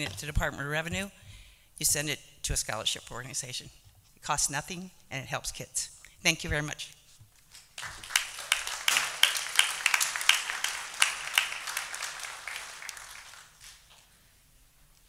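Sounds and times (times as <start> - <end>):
audience applauding: 7.8 - 13.9.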